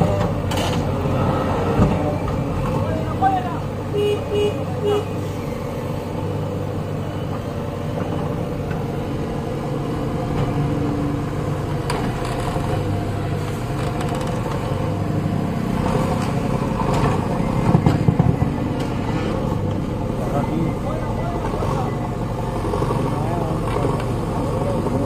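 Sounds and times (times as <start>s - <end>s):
diesel engines running under load: 0.0s - 25.0s.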